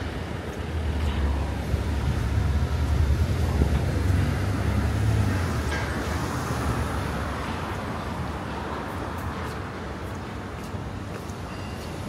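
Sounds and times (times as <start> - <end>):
city road noise: 0.0 - 12.0
passing vehicle rumble: 0.7 - 8.8.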